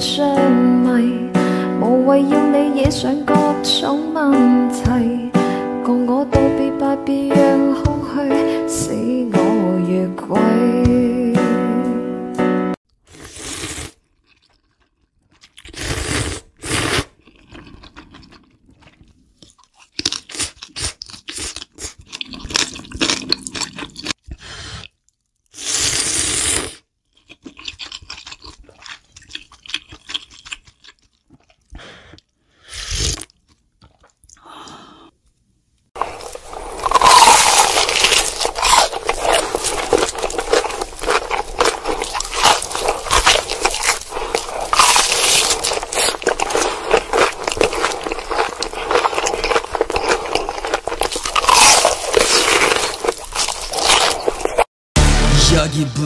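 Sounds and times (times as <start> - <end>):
knife crunching through ribs: 13.0 - 34.2, 36.0 - 54.7.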